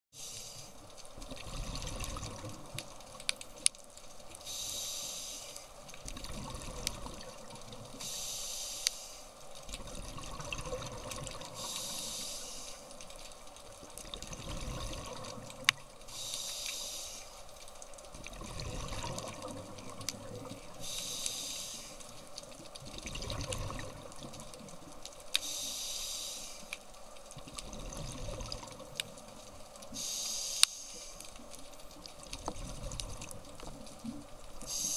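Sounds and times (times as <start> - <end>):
regulator hissing inhale: 0.2 - 0.8, 4.4 - 5.7, 8.0 - 9.3, 11.5 - 13.0, 16.1 - 17.5, 20.8 - 22.1, 25.4 - 26.8, 29.9 - 31.2, 34.6 - 34.9
bubbling exhale: 18.3 - 22.0.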